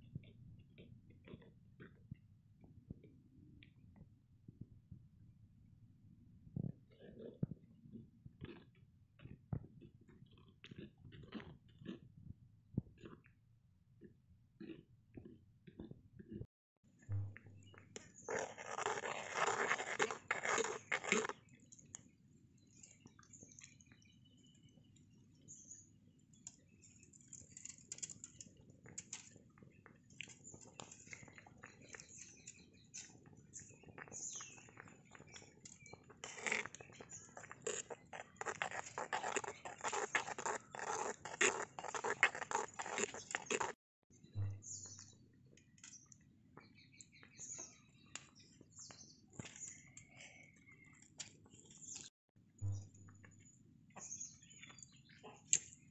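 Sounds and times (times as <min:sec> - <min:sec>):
stick stirring milk in clay pot: 0:17.2 - 0:24.6, 0:26.3 - 0:43.8
metal spoon scraping clay pot: 0:18.2 - 0:21.4, 0:35.8 - 0:43.8.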